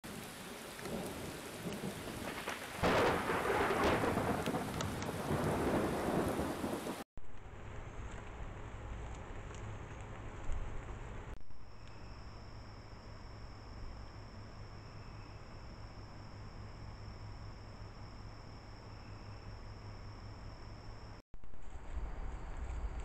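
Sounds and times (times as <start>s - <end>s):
heavy rain hissing: 0.0s - 7.0s
thunder clap and rumble: 0.1s - 9.6s.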